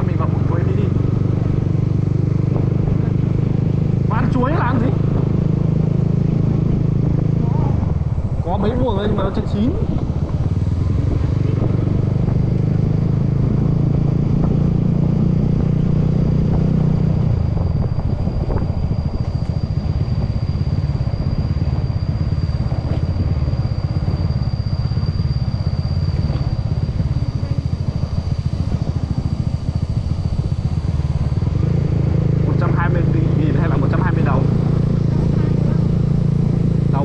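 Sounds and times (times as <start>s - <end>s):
road and wind noise: 0.0s - 37.0s
scooter engine running: 0.0s - 37.0s
thin high-pitched whine: 0.0s - 37.0s.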